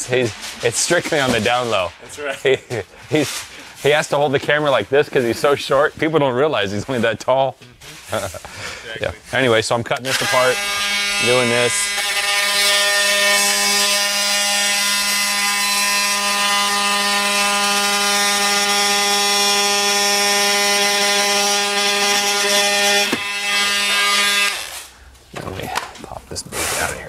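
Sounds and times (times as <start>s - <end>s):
multi-tool cutting drywall: 0.0s - 4.0s, 10.0s - 24.9s.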